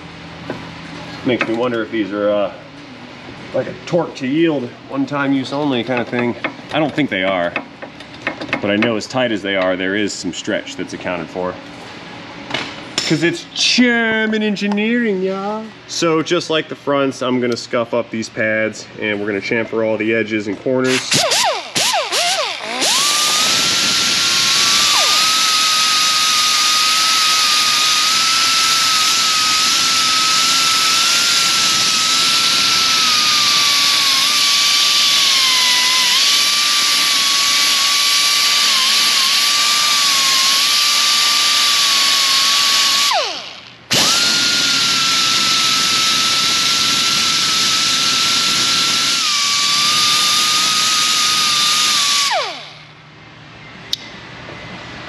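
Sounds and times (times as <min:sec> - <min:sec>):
rotary grinder whining: 0:20.9 - 0:52.9.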